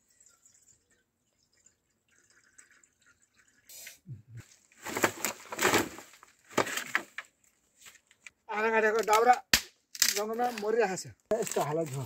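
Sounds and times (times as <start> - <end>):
water dripping: 0.0 - 3.7.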